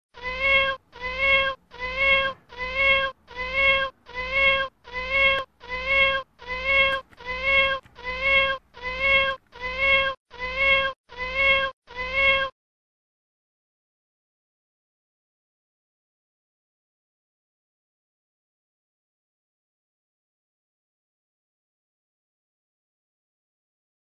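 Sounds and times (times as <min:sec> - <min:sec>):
cat meowing: 0:00.2 - 0:12.6.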